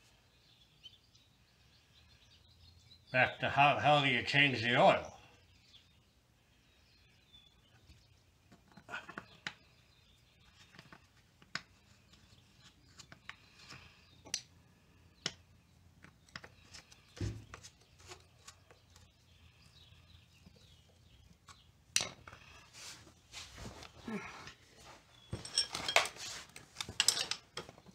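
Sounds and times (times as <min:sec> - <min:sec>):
metal parts clicking and scraping: 0:25.3 - 0:27.9.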